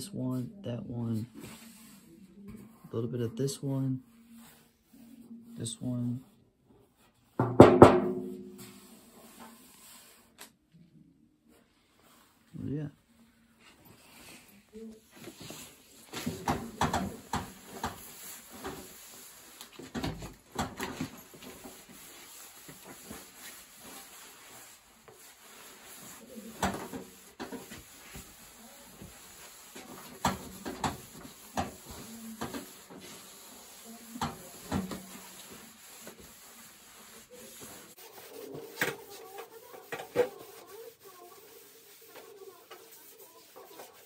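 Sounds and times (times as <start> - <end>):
cloth wiping sheet metal: 8.0 - 10.3, 14.3 - 44.0.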